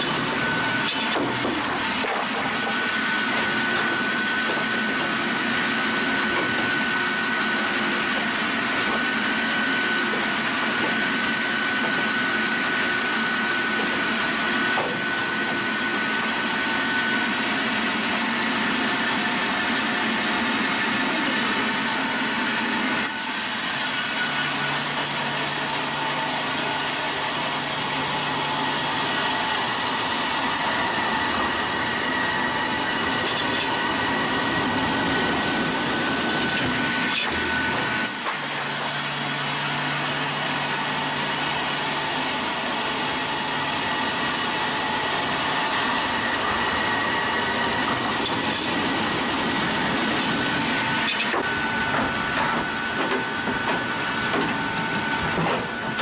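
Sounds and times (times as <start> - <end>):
sawmill sawing log: 0.0 - 56.0.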